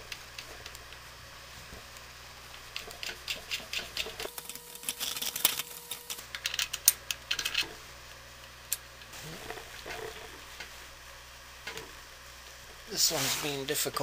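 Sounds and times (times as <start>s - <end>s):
parts clicking and rattling: 2.7s - 7.8s.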